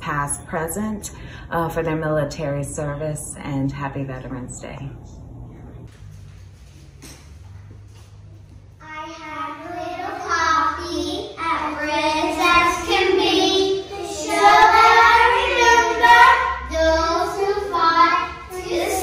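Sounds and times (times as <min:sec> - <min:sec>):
children singing in unison: 0:08.9 - 0:19.0.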